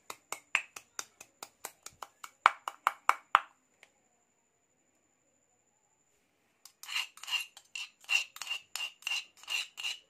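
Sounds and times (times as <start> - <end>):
pestle pounding in stone mortar: 0.0 - 3.4.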